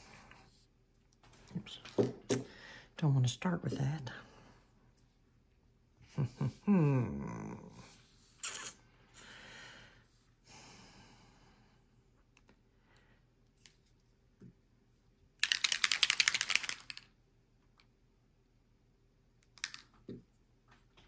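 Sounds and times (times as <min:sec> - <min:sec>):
small bottle rattling when shaken: 0:15.4 - 0:17.1.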